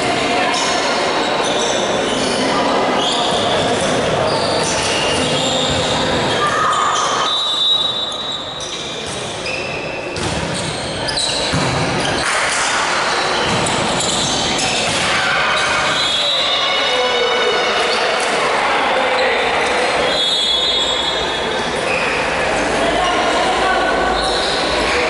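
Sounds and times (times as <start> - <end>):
players' voices and calls: 0.0 - 25.0
sneakers squeaking on court: 0.6 - 16.6.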